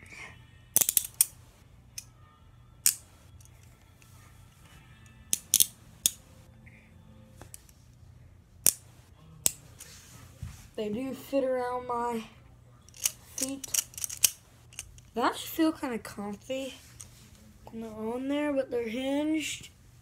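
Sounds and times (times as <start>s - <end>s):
handcuffs ratcheting clicks: 0.8s - 1.4s, 2.8s - 3.7s, 5.3s - 6.2s, 12.9s - 15.1s.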